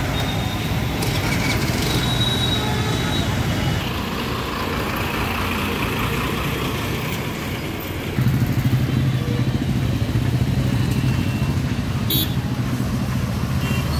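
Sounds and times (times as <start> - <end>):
bus engine running: 0.0 - 13.5
road vehicle noise: 0.0 - 13.9.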